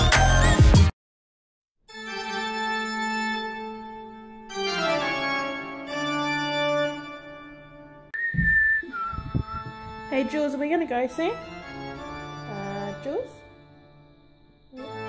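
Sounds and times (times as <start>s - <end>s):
loud beat-driven music: 0.0s - 0.9s
held organ chords: 2.0s - 8.5s, 9.1s - 15.0s.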